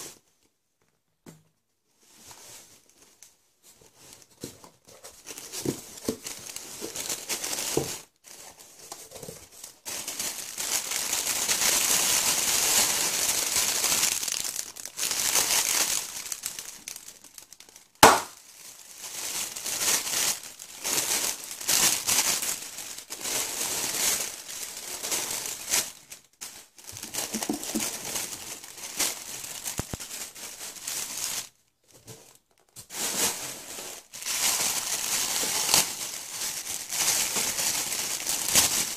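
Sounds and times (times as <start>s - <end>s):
plastic packaging crinkling: 3.9s - 38.9s
sharp snap: 18.0s - 18.4s.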